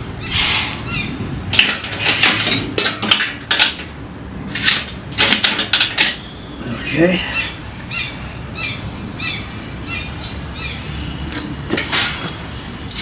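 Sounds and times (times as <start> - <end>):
metal grate clinking and rattling: 1.5 - 6.3, 11.4 - 12.4.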